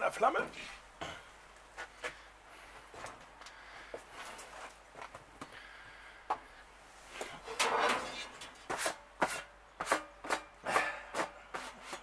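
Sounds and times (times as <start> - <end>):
metal tool scraping grill grate: 7.4 - 12.0.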